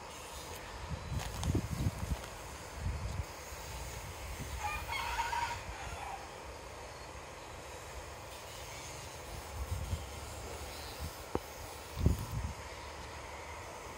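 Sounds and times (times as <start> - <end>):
rooster crowing: 4.6 - 6.4.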